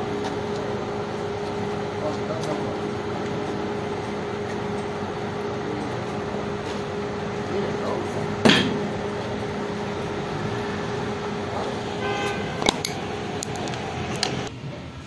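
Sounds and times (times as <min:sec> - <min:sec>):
machine hum: 0:00.0 - 0:15.0
short horn-like toot: 0:12.0 - 0:13.2.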